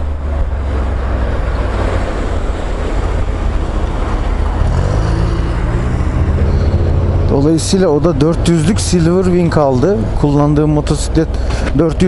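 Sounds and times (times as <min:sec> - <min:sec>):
motorcycle engine running: 0:03.6 - 0:07.8.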